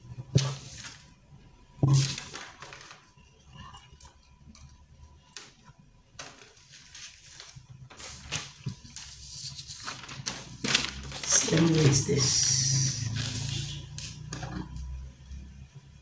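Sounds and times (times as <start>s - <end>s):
paper rustling: 1.9s - 3.2s, 6.2s - 12.5s.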